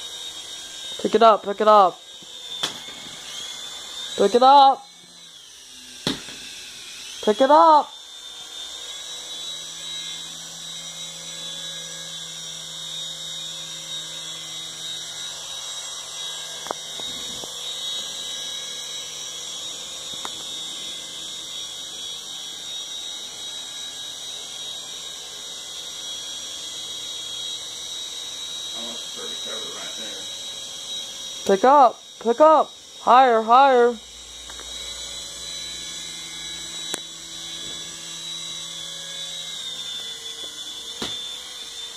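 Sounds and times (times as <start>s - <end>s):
toy helicopter motor whine: 0.0s - 41.9s.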